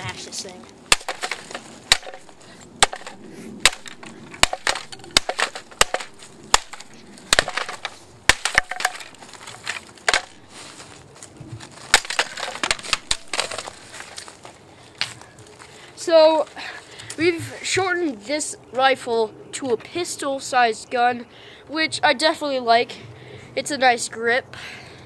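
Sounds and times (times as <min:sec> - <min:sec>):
plastic pieces cracking: 0:00.5 - 0:10.5, 0:11.6 - 0:14.6
mallet smashing plastic toy: 0:00.9 - 0:10.4, 0:11.9 - 0:13.9.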